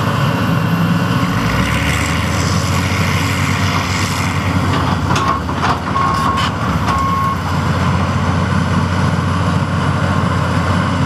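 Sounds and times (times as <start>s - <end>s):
diesel engine running: 0.0s - 11.0s
backup alarm beeps: 6.0s - 7.5s.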